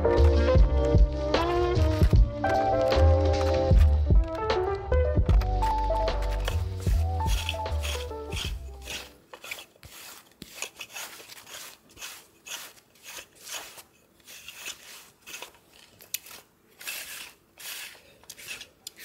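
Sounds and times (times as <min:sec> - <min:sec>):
lint roller rasping on fabric: 0:06.4 - 0:19.0.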